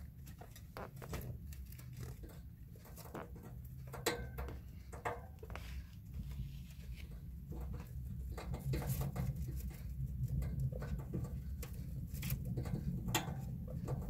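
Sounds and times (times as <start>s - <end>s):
low steady hum: 0.0s - 14.0s
guinea pigs rustling in hay: 4.6s - 10.2s.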